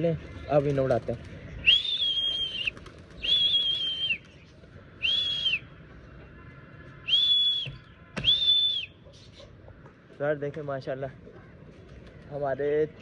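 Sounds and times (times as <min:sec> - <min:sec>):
person whistling: 0:07.1 - 0:08.9.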